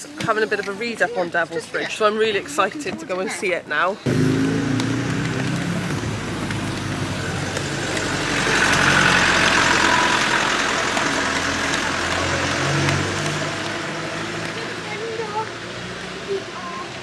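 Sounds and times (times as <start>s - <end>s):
truck engine driving past: 4.1s - 16.2s.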